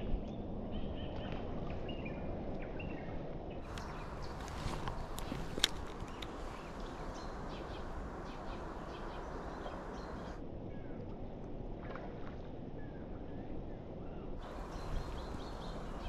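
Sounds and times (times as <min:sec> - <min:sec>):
faint bird chirps: 0:06.0 - 0:10.9, 0:14.1 - 0:16.0.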